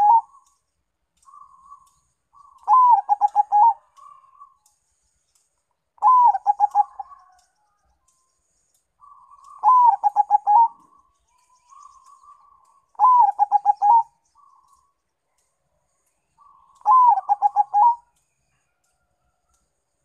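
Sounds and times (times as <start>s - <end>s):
dove cooing: 0.0s - 0.4s, 2.4s - 4.6s, 6.0s - 7.3s, 9.0s - 11.1s, 11.8s - 14.6s, 16.4s - 18.1s
soft murmured dove notes: 0.0s - 20.0s.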